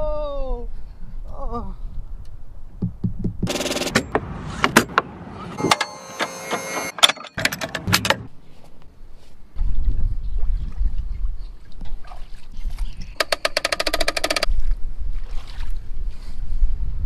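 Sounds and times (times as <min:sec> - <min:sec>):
knocks and sharp clicks: 0:02.8 - 0:08.3, 0:13.2 - 0:14.5.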